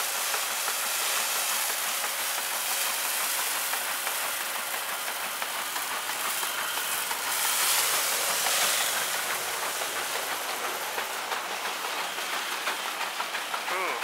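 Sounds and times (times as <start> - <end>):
threshing machine whirring: 0.0 - 14.0
straw rattling through machine: 0.2 - 14.0.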